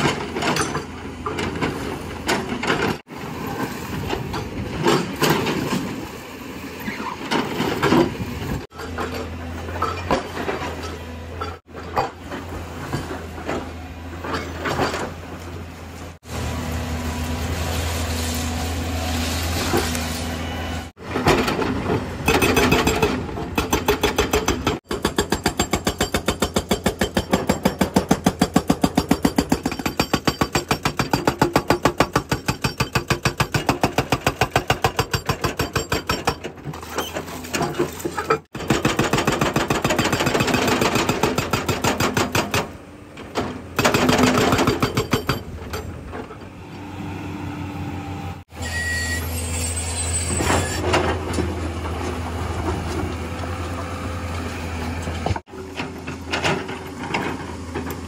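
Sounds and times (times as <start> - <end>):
hydraulic breaker hammering concrete: 22.2 - 36.4, 38.5 - 42.8, 43.8 - 45.7.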